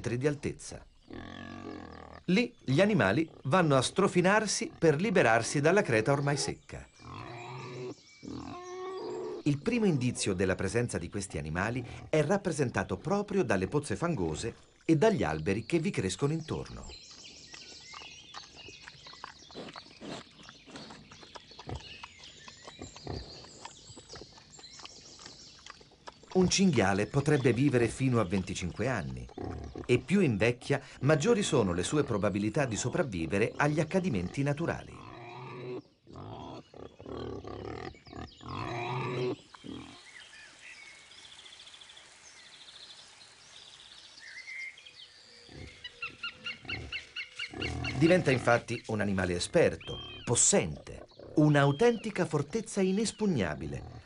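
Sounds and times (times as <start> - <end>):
wild boar grunting: 1.0 - 10.6, 11.2 - 13.2, 16.6 - 40.1, 45.3 - 52.6, 53.4 - 54.0.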